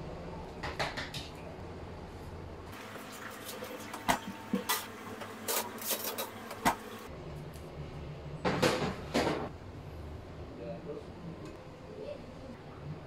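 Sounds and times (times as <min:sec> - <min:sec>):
convection fan hum: 0:00.0 - 0:13.0
metal tins scraping on wire rack: 0:04.6 - 0:07.0.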